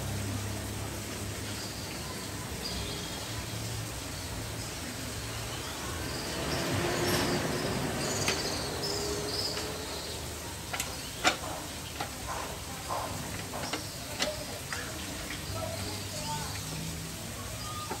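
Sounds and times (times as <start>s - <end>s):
birds chirping: 1.3s - 18.0s
metal clicks and knocks: 10.6s - 15.4s.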